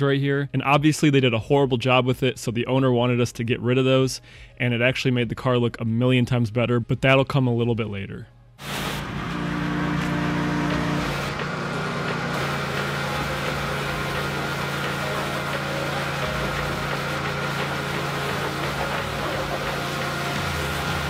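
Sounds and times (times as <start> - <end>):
pressure washer engine running: 8.6 - 21.0
water jet hissing: 8.6 - 21.0.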